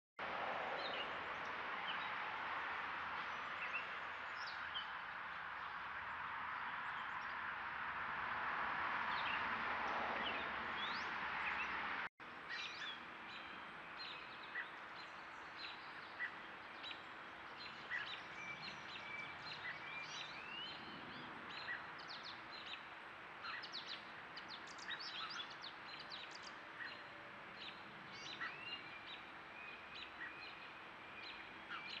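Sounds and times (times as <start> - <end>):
small birds chirping: 12.4 - 32.0.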